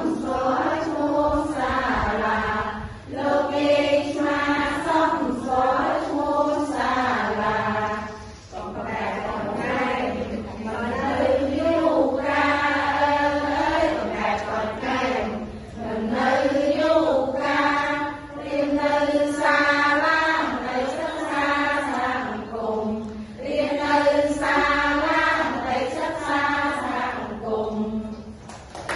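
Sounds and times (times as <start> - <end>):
women singing together: 0.0 - 28.9.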